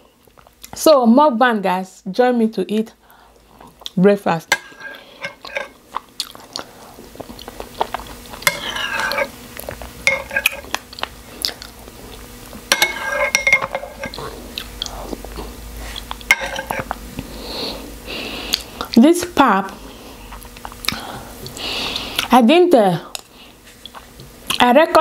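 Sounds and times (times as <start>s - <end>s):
person chewing: 3.4s - 4.0s, 4.8s - 12.6s, 13.2s - 19.0s, 20.1s - 22.3s, 23.1s - 24.6s.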